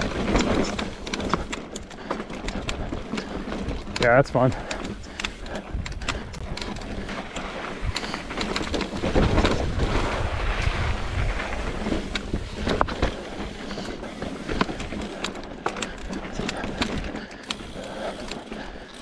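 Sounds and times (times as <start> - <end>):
bike clicks and knocks: 0.0 - 10.8, 11.4 - 19.0
bike tyres rumbling over rock: 0.0 - 19.0
wind buffeting microphone: 2.4 - 15.2.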